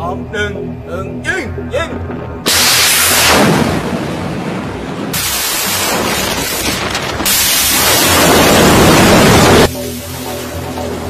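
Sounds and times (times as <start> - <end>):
rocket exhaust rushing hiss: 2.4 - 10.5.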